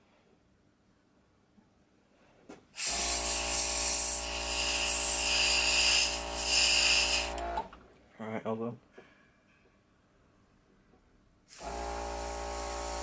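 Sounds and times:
airbrush spraying hiss: 2.8 - 7.4, 11.5 - 13.0
motor hum: 2.9 - 7.8, 11.6 - 13.0.

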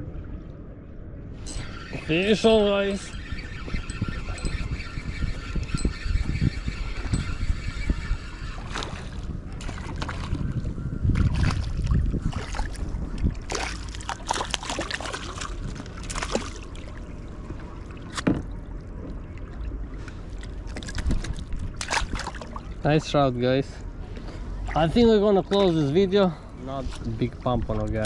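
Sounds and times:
wind rumble on microphone: 0.0 - 28.0
water splashing: 11.1 - 22.8.

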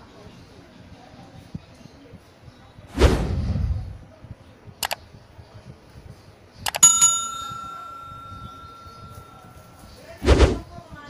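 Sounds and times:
downward whoosh: 2.9 - 3.9.

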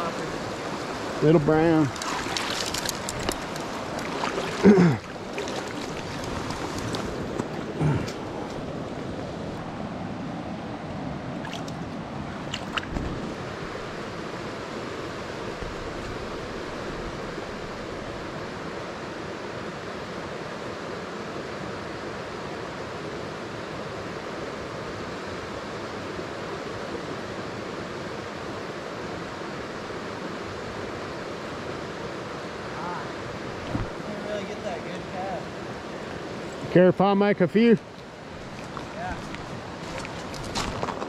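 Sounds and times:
creek rushing over rocks: 0.0 - 18.5, 32.3 - 41.0.

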